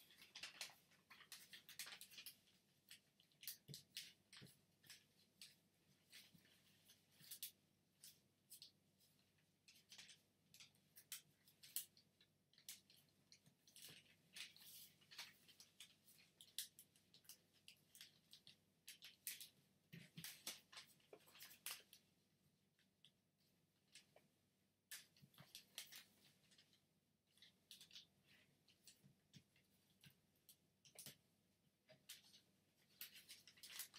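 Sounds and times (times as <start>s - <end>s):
paper rustling being folded: 0.0s - 22.1s, 31.9s - 33.9s.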